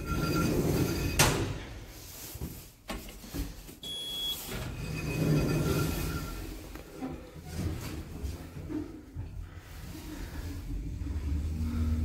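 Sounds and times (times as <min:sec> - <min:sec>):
lift doors sliding with motor whine: 0:00.0 - 0:01.9, 0:03.9 - 0:12.0
short high beep: 0:03.8 - 0:06.4.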